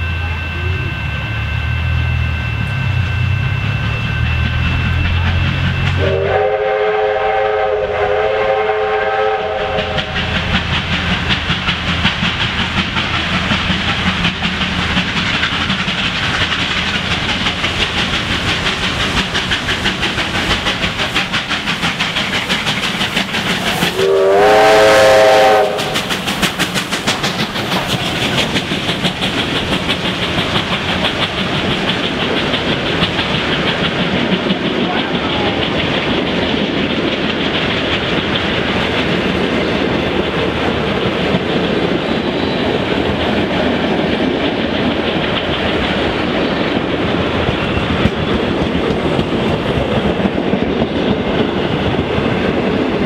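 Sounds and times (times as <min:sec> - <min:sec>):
steam locomotive exhaust: 0:00.0 - 0:53.0
steam whistle: 0:05.8 - 0:10.4, 0:23.6 - 0:26.1
wheels clattering on rail: 0:08.5 - 0:53.0.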